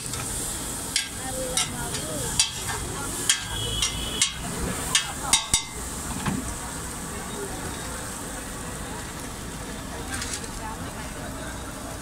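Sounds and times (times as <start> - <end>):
frying sizzle: 0.0 - 12.0
metal spatulas clanging on wok: 0.9 - 5.8.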